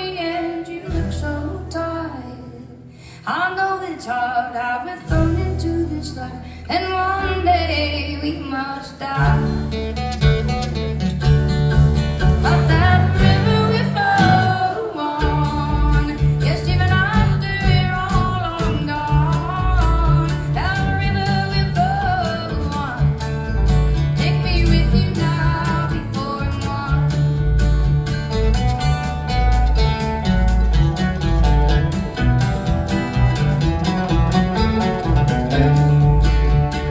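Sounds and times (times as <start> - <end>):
woman singing: 0.0 - 9.8, 12.4 - 27.6
live country band: 0.0 - 36.9.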